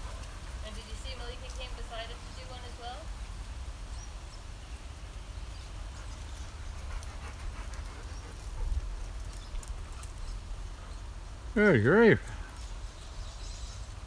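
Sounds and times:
dogs panting and sniffing: 0:05.5 - 0:11.5.

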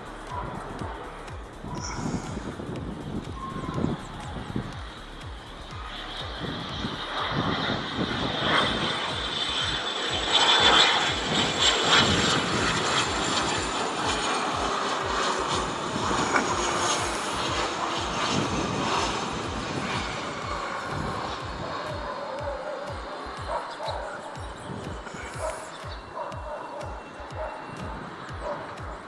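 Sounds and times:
jet flying past low: 0:00.0 - 0:29.0.

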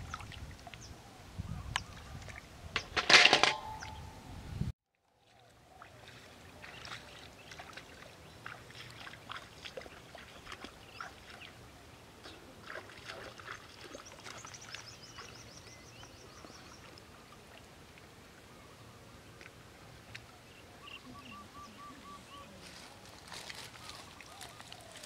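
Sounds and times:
water splashing and dripping: 0:00.0 - 0:00.9, 0:05.3 - 0:11.6, 0:12.2 - 0:15.6.

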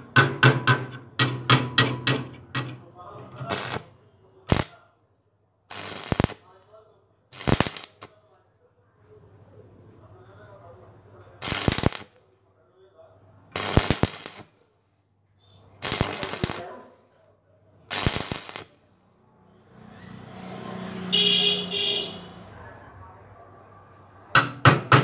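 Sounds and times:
welding arc crackling: 0:03.2 - 0:03.9, 0:04.5 - 0:04.8, 0:05.7 - 0:06.6, 0:07.3 - 0:08.2, 0:11.4 - 0:12.2, 0:13.5 - 0:14.6, 0:15.8 - 0:17.0, 0:17.9 - 0:18.9.

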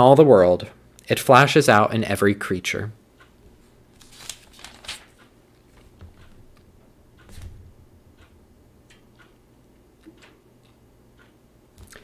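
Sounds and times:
pages rustling: 0:03.9 - 0:06.1.

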